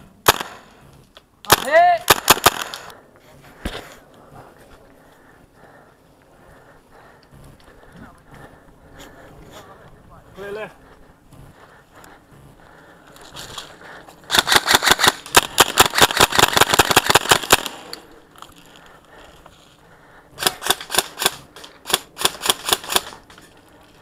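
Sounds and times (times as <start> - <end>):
airsoft rifles firing: 0.2 - 0.7, 1.5 - 2.9, 14.3 - 18.0, 20.4 - 23.3.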